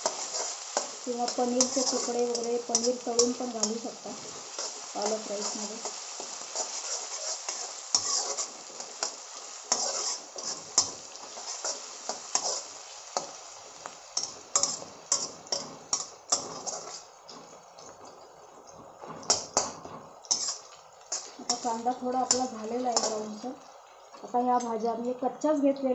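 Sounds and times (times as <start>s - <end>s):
metal spatula scraping pan: 0.0s - 13.4s, 14.2s - 17.1s, 19.2s - 23.4s
onions sizzling in oil: 0.0s - 25.9s.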